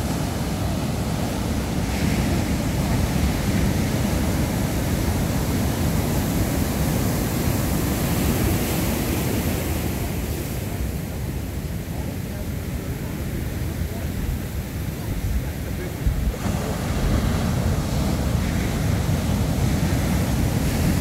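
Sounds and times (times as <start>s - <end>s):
ocean surf breaking: 0.0s - 21.0s
wind buffeting microphone: 13.9s - 21.0s.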